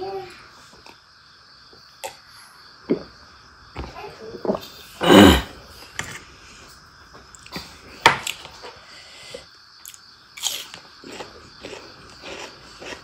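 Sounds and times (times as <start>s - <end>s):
sharp food crunches: 9.8s - 13.0s.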